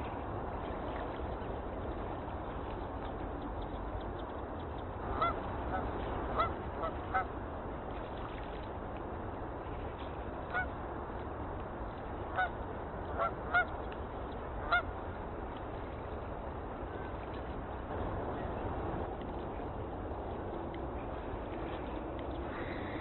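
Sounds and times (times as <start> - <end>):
coots calling: 22.5 - 23.0.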